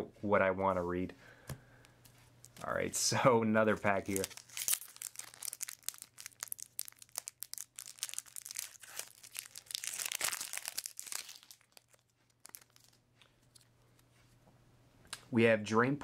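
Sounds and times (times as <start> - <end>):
plastic wrapper crinkling and tearing: 3.9 - 13.7.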